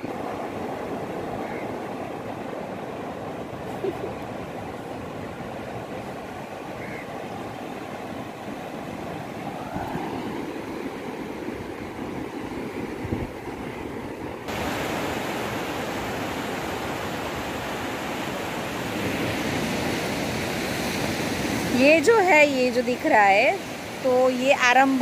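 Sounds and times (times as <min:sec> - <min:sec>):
surf breaking on beach: 0:07.8 - 0:22.1.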